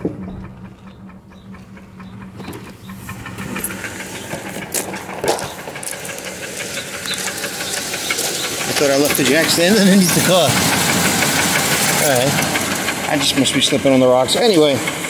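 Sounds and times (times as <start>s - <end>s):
car engine idling: 0.0s - 15.0s
footsteps on gravel: 3.2s - 8.7s.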